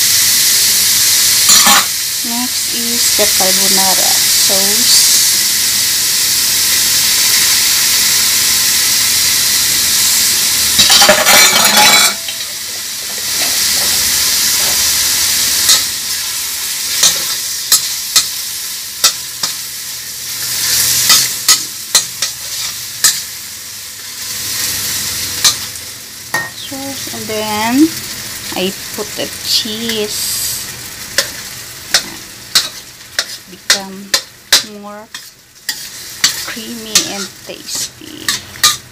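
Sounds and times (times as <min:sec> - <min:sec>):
meat sizzling in a wok: 0:00.0 - 0:38.9
metal spoon scraping a wok: 0:10.8 - 0:12.4, 0:20.4 - 0:23.3, 0:29.9 - 0:38.9.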